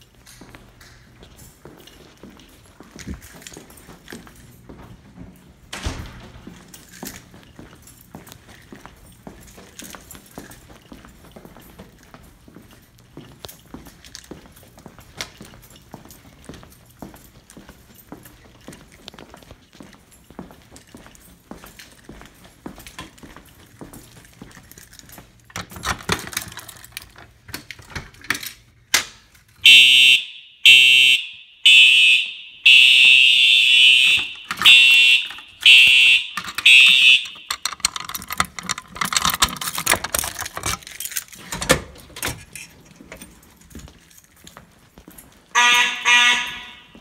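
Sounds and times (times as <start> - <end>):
footsteps: 0.0 - 27.5, 32.7 - 47.0
fire alarm horn blasts: 29.6 - 37.7, 45.5 - 47.0
handling clicks: 34.1 - 44.2.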